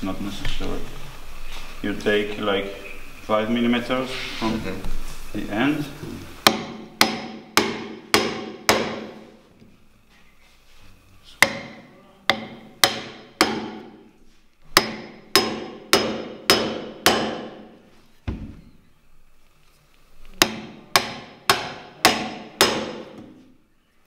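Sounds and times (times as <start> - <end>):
hammer striking steel chisel: 6.4 - 9.2, 11.4 - 14.1, 14.7 - 17.7, 20.4 - 23.3.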